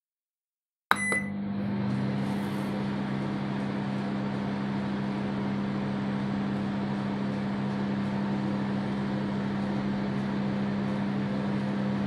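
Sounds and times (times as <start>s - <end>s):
short high beep: 0.9s - 1.4s
microwave oven click: 0.9s - 2.2s
microwave oven humming: 0.9s - 12.0s.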